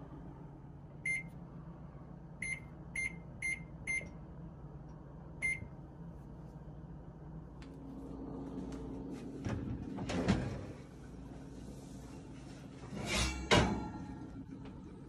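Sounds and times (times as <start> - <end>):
microwave keypad beeps: 1.0 - 1.3, 2.4 - 4.1, 5.4 - 5.7.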